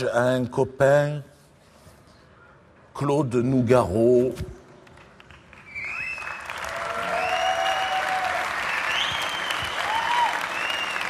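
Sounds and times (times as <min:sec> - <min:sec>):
audience applauding: 0:05.2 - 0:11.0
whistles: 0:05.6 - 0:06.5, 0:08.6 - 0:11.0.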